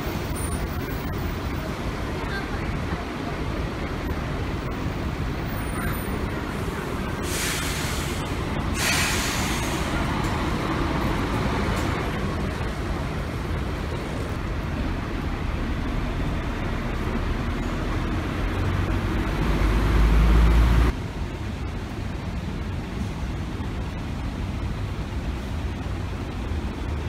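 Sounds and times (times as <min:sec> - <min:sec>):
bus engines running: 0:00.0 - 0:27.0
air brakes hissing: 0:07.2 - 0:10.2.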